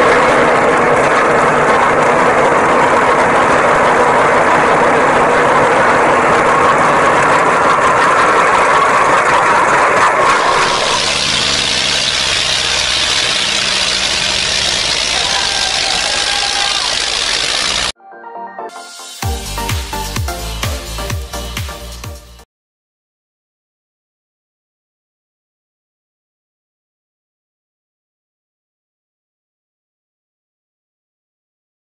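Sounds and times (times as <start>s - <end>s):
tractor diesel engine running hard: 0.0s - 18.0s.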